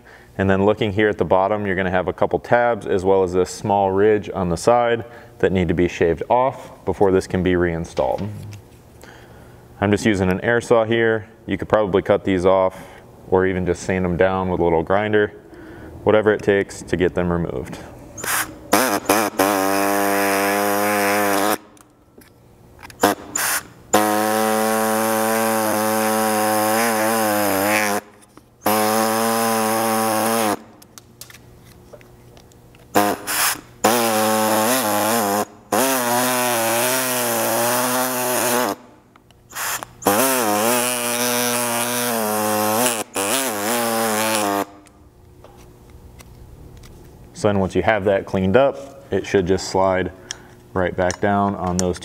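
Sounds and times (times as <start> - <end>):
pneumatic air saw cutting plastic: 18.2 - 21.9, 22.8 - 31.4, 32.9 - 45.0.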